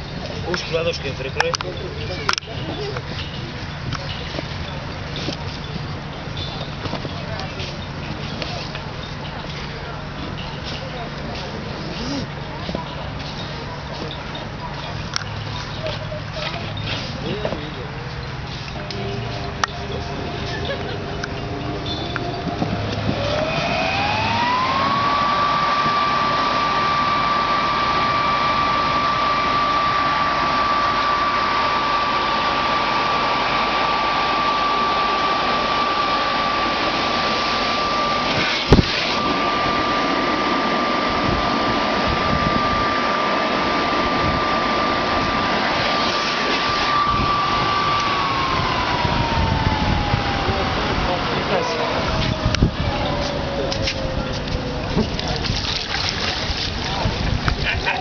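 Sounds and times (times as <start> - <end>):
electric air blower whining: 11.4 - 12.4, 18.7 - 58.0.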